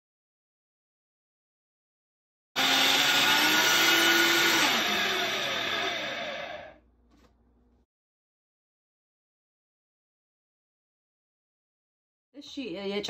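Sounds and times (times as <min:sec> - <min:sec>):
electric blender running: 0:02.6 - 0:06.8.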